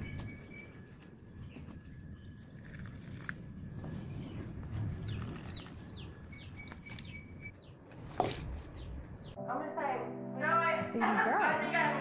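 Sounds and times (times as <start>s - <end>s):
small bird chirping: 4.2s - 7.8s.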